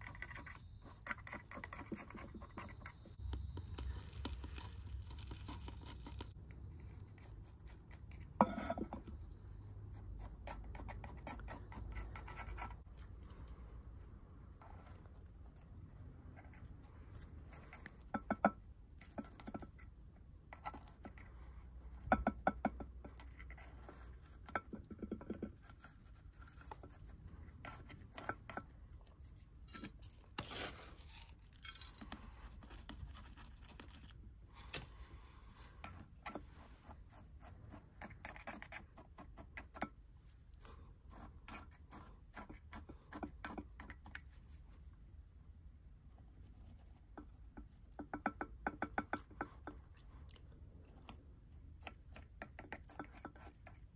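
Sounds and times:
metal tweezers scraping soil: 0.0 - 9.2, 20.6 - 32.2
soil rustling scrape: 29.9 - 35.7.

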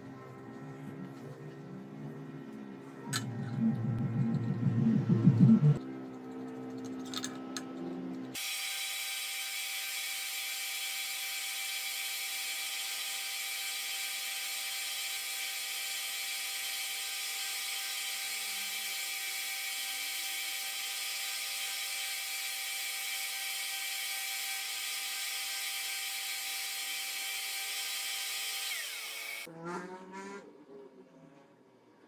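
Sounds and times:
belt grinder sharpening drill bit: 8.4 - 29.5.

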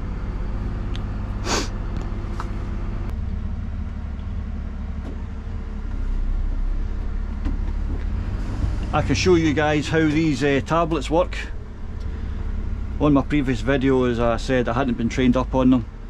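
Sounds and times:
truck diesel engine running: 0.0 - 16.0
air hiss: 1.4 - 1.8.

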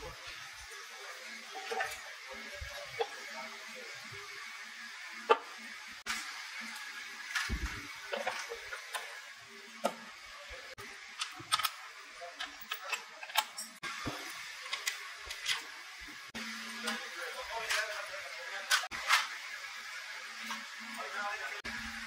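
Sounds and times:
metal parts and tools clinking: 11.2 - 11.8, 12.4 - 13.8.

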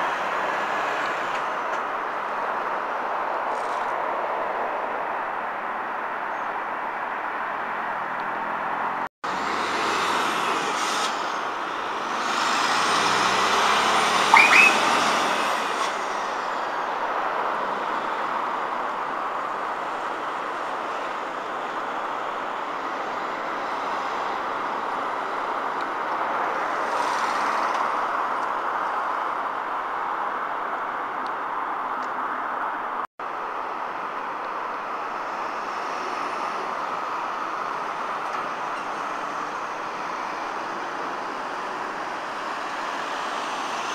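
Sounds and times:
heavy road traffic: 0.0 - 43.9
sharp high squeal: 14.3 - 15.2.

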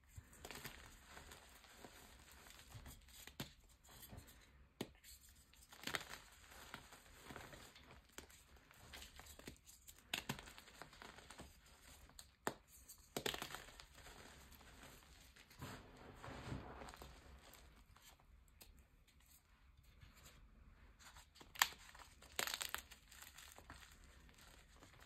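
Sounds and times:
chalk pieces snapping: 21.4 - 23.8.

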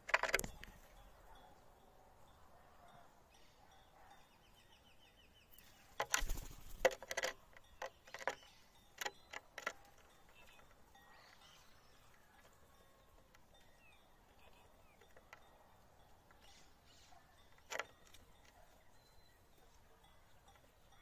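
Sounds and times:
bird wings fluttering: 6.0 - 7.0.

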